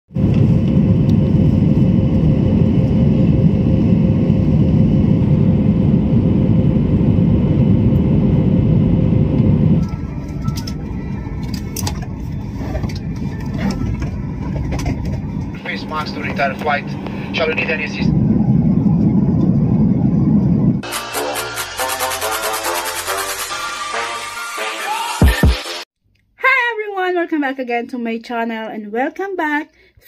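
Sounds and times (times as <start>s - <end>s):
jet engine rush in cabin: 0.1s - 23.6s
quiet cabin hum: 0.2s - 20.8s.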